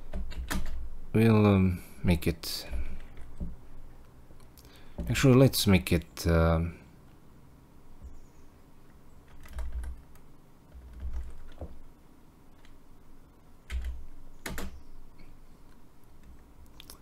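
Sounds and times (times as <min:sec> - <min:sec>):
computer keyboard keystrokes: 0:00.1 - 0:00.8, 0:09.3 - 0:11.7, 0:13.7 - 0:14.8.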